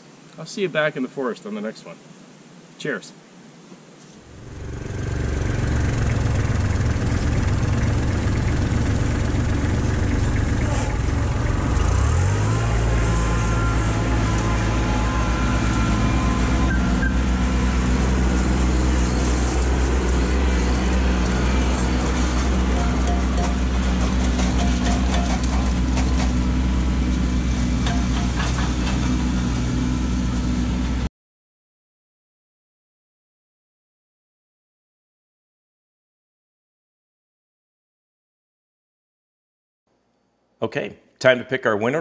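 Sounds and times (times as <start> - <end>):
diesel tractor engine running: 4.3 - 31.1.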